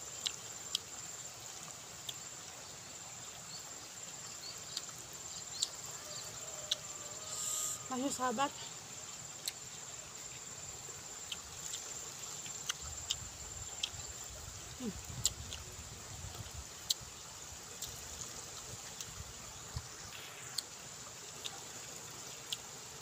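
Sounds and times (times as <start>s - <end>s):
insects droning: 0.0s - 23.0s
person eating with hands: 11.2s - 14.0s.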